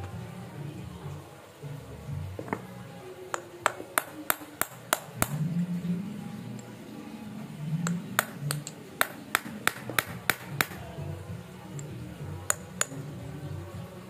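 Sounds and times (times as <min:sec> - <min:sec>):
steel tool tapping metal parts: 0:03.3 - 0:05.4, 0:07.8 - 0:10.8, 0:12.5 - 0:13.0.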